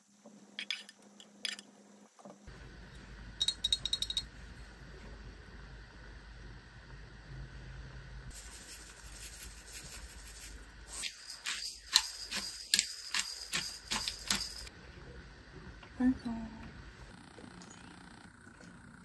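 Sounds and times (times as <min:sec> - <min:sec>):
sesame seeds being shaken: 0:08.3 - 0:13.2.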